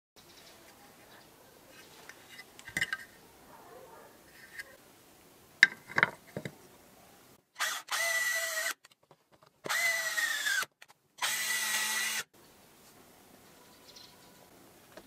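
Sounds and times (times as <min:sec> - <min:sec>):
cordless drill spinning: 0:07.6 - 0:08.9, 0:09.6 - 0:12.3.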